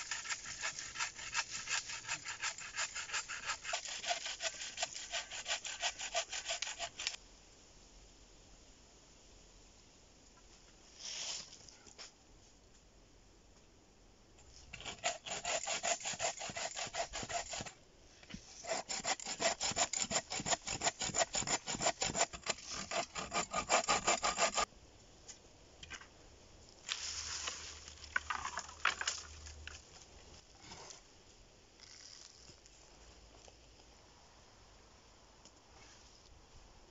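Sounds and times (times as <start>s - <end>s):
bow saw cutting wood: 0.0s - 7.2s, 14.7s - 17.7s, 18.5s - 24.7s
scraping and rubbing: 0.0s - 7.2s.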